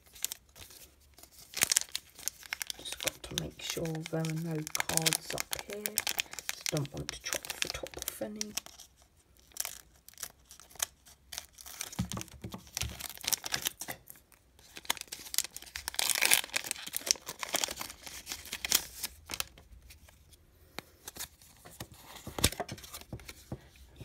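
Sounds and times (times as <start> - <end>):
foil wrapper tearing and crinkling: 0.0 - 14.0, 14.6 - 19.6.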